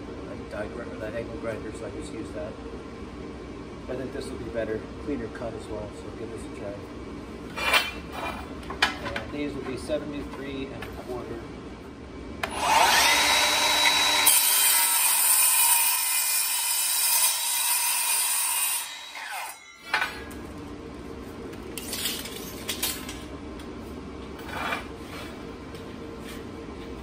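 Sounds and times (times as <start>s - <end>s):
miter saw cutting metal: 12.4s - 20.1s.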